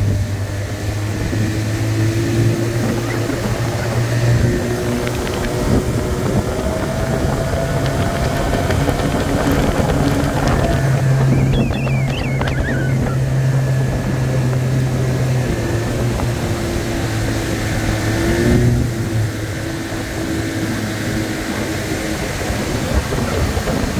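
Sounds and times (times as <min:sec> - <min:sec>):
outboard motor running: 0:00.0 - 0:23.9.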